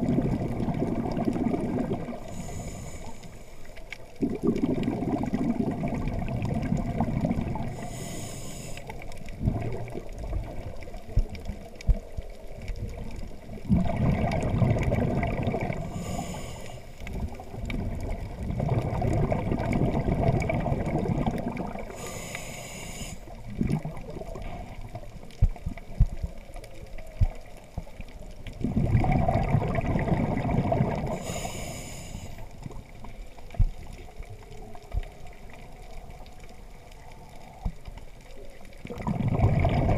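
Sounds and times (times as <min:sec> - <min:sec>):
bubbling exhaled air: 0:00.0 - 0:26.3, 0:28.4 - 0:39.9
regulator hiss: 0:02.2 - 0:03.7, 0:07.6 - 0:09.0, 0:15.8 - 0:17.0, 0:21.9 - 0:23.4, 0:31.2 - 0:32.5.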